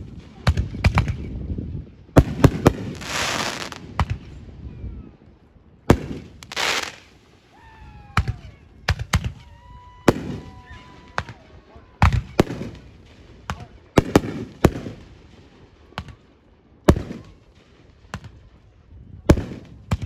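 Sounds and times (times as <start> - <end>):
fireworks bursting with bangs: 0.0 - 4.5, 5.9 - 20.0
firework hissing rush: 2.6 - 3.8, 6.3 - 7.2.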